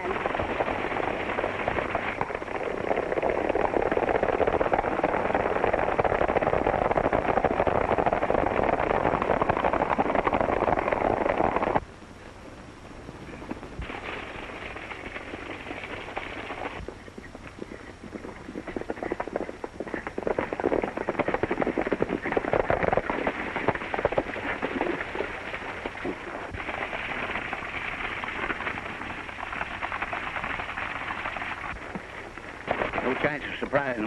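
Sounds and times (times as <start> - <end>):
horses galloping: 0.0 - 11.9, 13.1 - 34.0.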